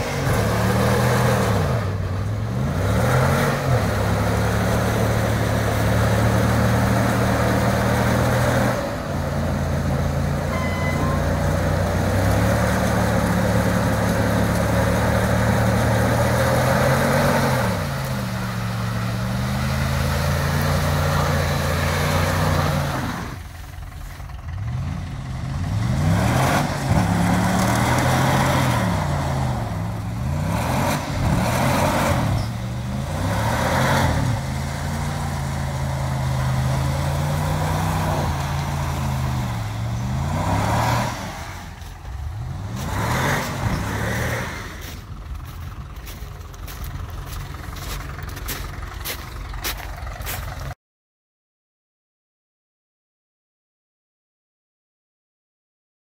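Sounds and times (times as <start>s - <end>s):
truck engine revving: 0.0s - 50.8s
wheels spinning in mud: 11.0s - 50.7s.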